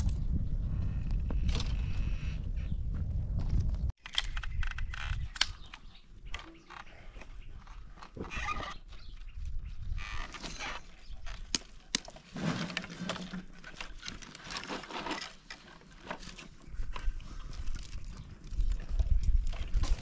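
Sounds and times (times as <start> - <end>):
twigs cracking and rustling: 4.0 - 20.0.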